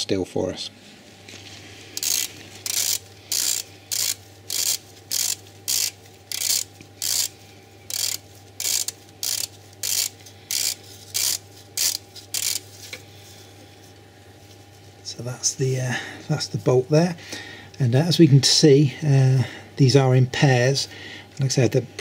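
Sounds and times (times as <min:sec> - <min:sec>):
steady low hum: 0:00.0 - 0:22.0
ratchet clicks: 0:02.0 - 0:12.6.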